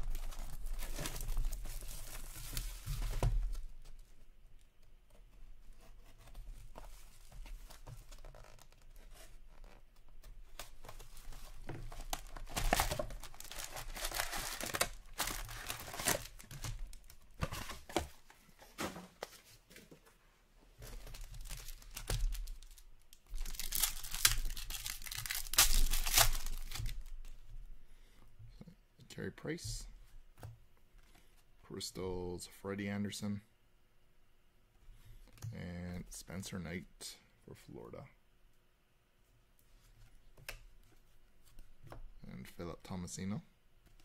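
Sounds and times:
handling of card packs and box: 0.0 - 4.1, 6.0 - 20.2, 20.8 - 27.4
foil wrappers tearing and crinkling: 12.0 - 17.1, 21.1 - 27.1.

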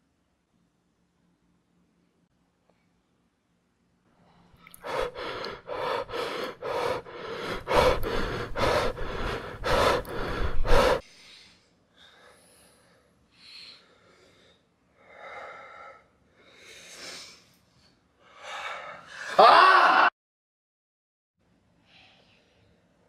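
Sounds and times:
man breathing hard: 4.8 - 17.5, 18.2 - 19.4.

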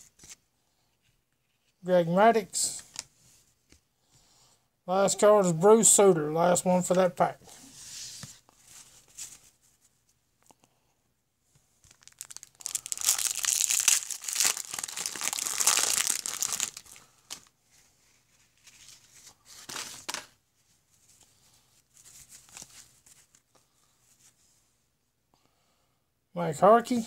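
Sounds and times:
soft paper rustling: 6.9 - 10.5, 11.5 - 24.7
card pack wrapper crinkling: 11.8 - 17.5.

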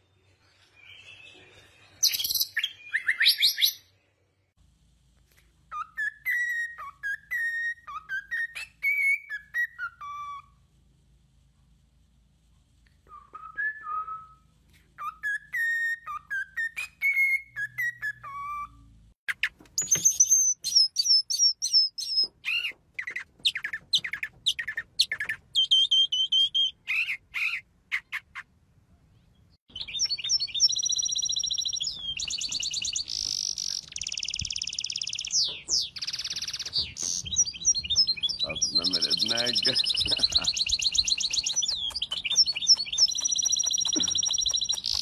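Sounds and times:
cockatiel whistling: 5.7 - 10.6, 15.0 - 18.8, 29.7 - 45.0
mockingbird singing: 15.0 - 28.4, 29.3 - 45.0
songbird twittering trills: 29.2 - 45.0.

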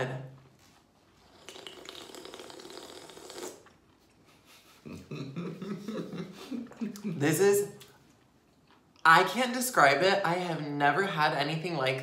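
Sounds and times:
sipping drink from a can: 1.3 - 3.8.

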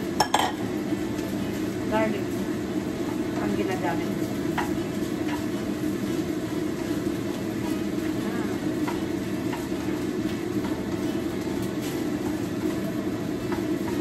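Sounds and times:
food sizzling in a pan: 0.0 - 14.0.

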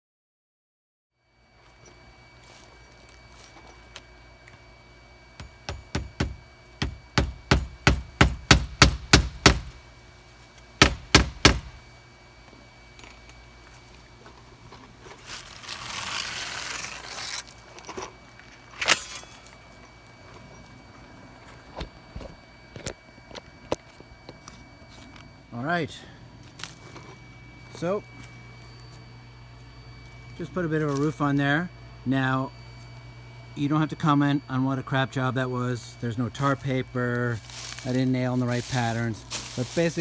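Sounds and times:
faint steady hum: 1.2 - 40.0
hammer driving nails: 5.4 - 9.7
rustling scrape: 15.0 - 19.6, 37.4 - 40.0.

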